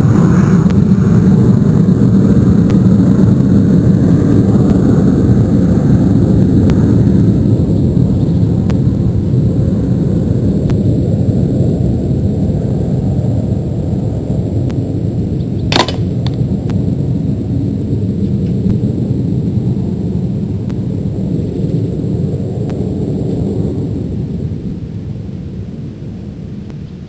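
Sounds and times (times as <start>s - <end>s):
low rumble: 0.0s - 27.0s
air rifle shot: 15.7s - 16.4s.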